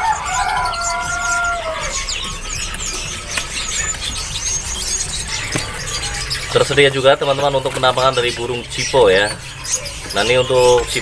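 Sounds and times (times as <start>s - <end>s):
rooster crowing: 0.0s - 2.3s
songbirds chirping and twittering: 0.0s - 11.0s.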